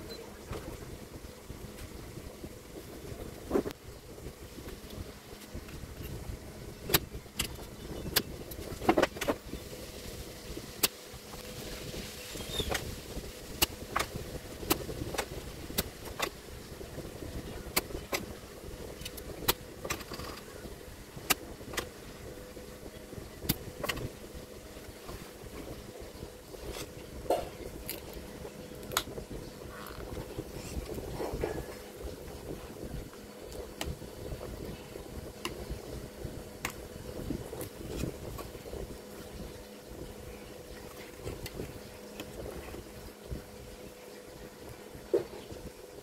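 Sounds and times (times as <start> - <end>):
desoldering pump clicks and snaps: 28.8 - 29.1.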